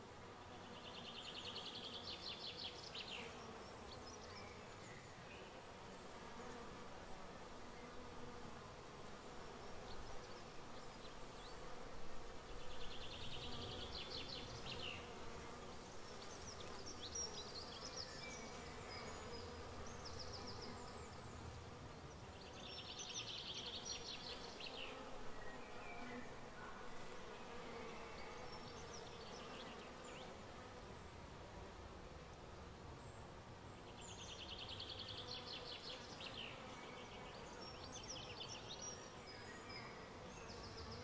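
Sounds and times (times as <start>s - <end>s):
insects buzzing: 5.9s - 31.2s.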